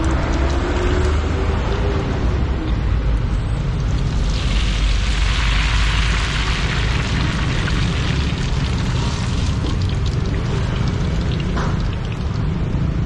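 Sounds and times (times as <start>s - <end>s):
noodles sizzling in hot oil: 3.8s - 12.0s.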